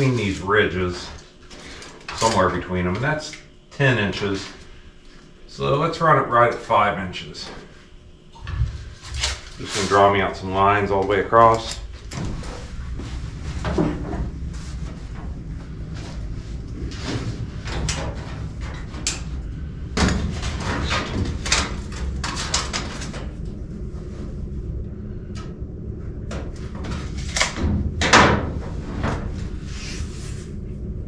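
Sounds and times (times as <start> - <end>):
steady low hum: 0.0 - 31.0
scraping and rubbing on sheet metal: 28.5 - 30.6.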